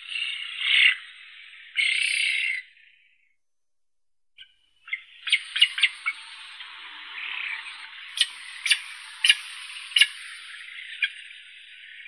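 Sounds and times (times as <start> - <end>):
steady hiss: 5.1 - 12.0.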